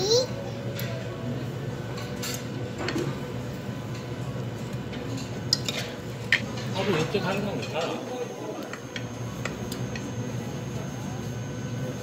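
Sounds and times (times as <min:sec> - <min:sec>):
steady background hum: 0:00.0 - 0:12.0
cutlery clinking against dishes: 0:01.9 - 0:03.2, 0:05.1 - 0:08.0.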